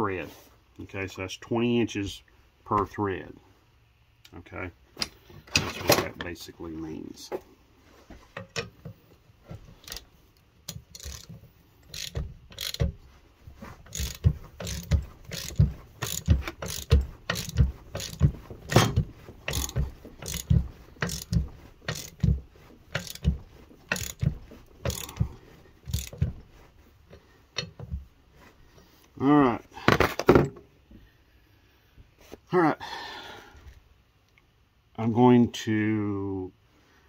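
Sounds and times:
hand ratchet clicking: 0:09.8 - 0:13.0, 0:13.8 - 0:26.5.

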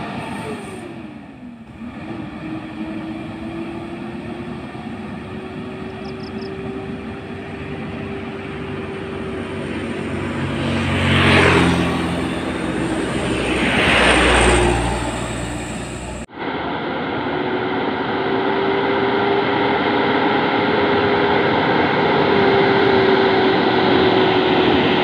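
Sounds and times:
diesel truck engine droning: 0:00.0 - 0:25.0
vehicle passing close by: 0:00.0 - 0:25.0
motor scooter passing: 0:01.7 - 0:16.3.

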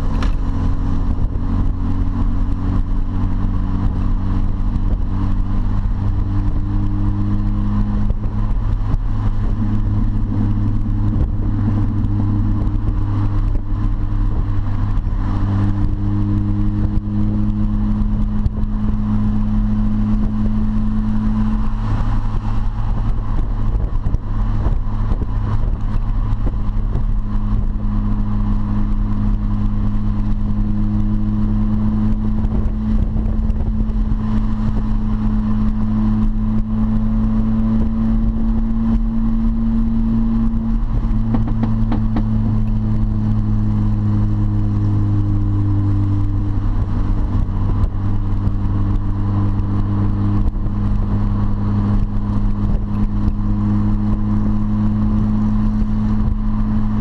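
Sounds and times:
car engine droning: 0:00.0 - 0:57.0.

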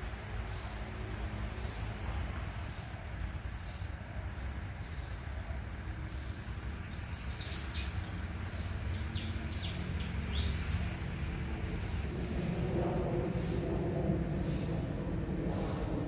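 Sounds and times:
low rumble: 0:11.0 - 0:16.0.

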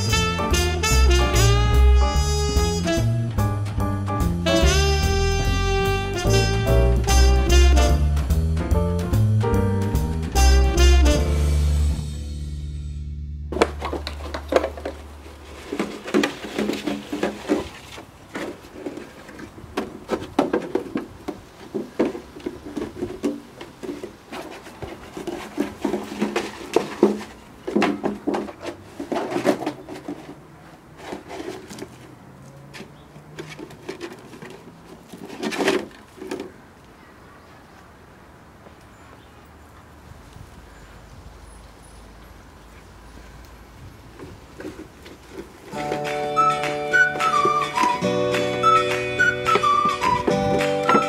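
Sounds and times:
plastic bottle clattering: 0:13.5 - 0:32.1, 0:32.7 - 0:36.7, 0:44.2 - 0:51.0.

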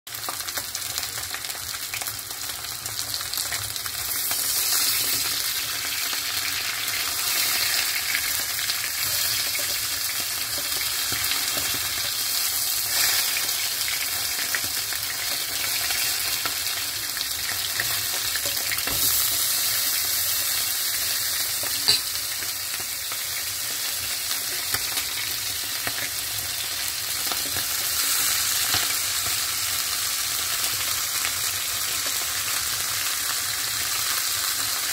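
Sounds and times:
chicken sizzling in oil: 0:00.1 - 0:34.9
fork scraping pan: 0:09.0 - 0:09.9, 0:21.6 - 0:22.2.

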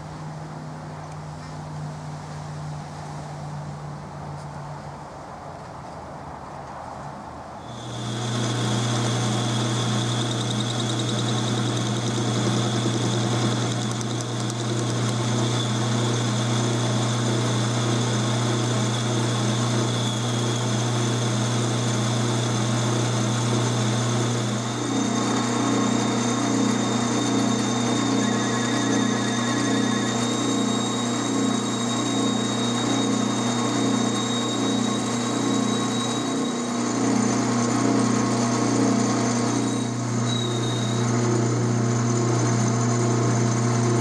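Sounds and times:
boring bar cutting metal: 0:07.6 - 0:41.6
lathe motor humming: 0:07.6 - 0:44.0.

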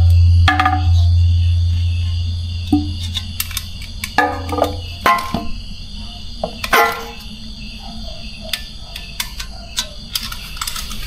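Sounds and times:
loud struck note: 0:00.0 - 0:03.0
steady high-pitched whine: 0:00.0 - 0:11.0.

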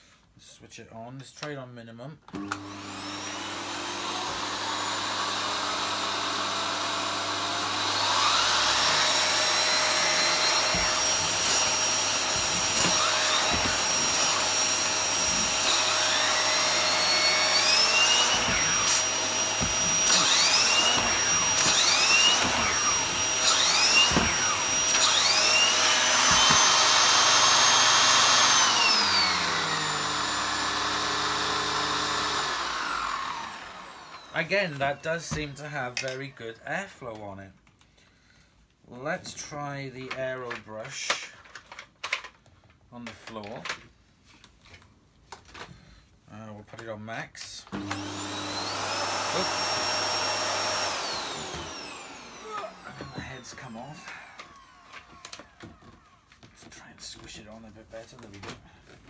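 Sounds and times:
vacuum cleaner running: 0:02.3 - 0:35.6, 0:47.7 - 0:56.2.

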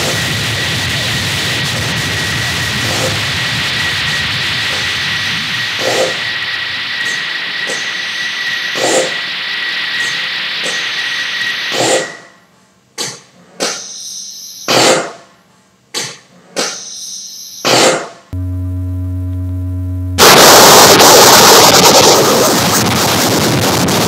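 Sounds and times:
loud wash of noise: 0:00.0 - 0:11.8, 0:20.2 - 0:24.0
hiss with high tone: 0:02.9 - 0:12.3
low hum of held tones: 0:18.4 - 0:20.2.

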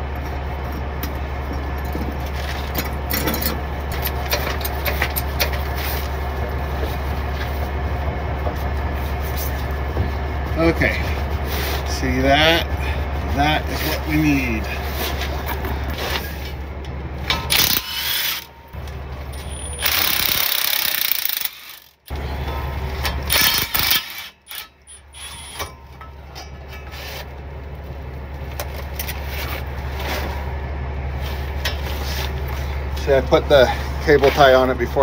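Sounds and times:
steady low hum: 0:00.0 - 0:35.0
electric ratchet running: 0:17.3 - 0:18.5, 0:19.4 - 0:22.2, 0:23.1 - 0:25.7.

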